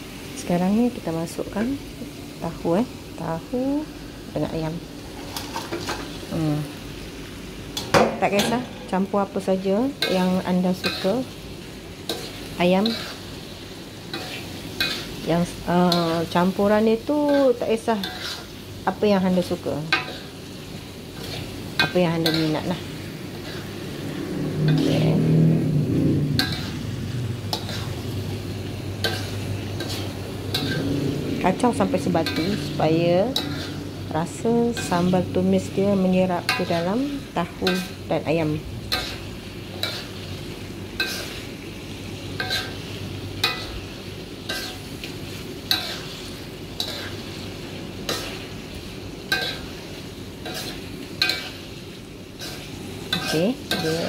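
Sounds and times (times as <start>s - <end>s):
soft sizzle: 0.0s - 54.0s
metal taps on a pan: 7.8s - 8.6s
metal spatula stirring in a wok: 7.8s - 25.6s, 26.2s - 54.0s.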